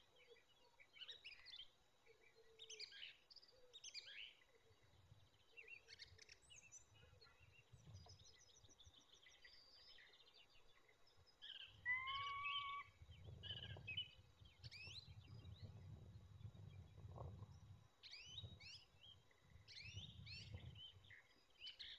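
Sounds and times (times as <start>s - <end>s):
small birds chirping and trilling: 0.0s - 21.9s
drawn-out bird call: 11.9s - 13.0s.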